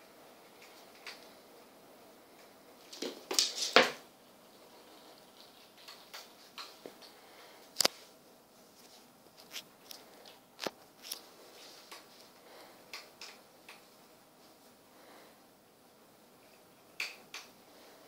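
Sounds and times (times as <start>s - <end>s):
claws clicking on floor: 2.4s - 4.0s, 5.4s - 8.0s, 12.9s - 13.9s.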